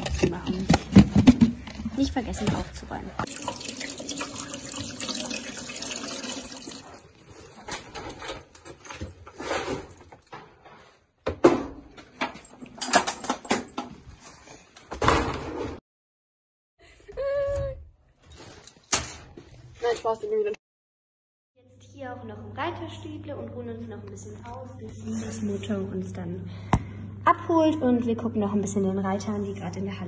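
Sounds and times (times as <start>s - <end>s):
tap water running into sink: 3.2s - 6.8s.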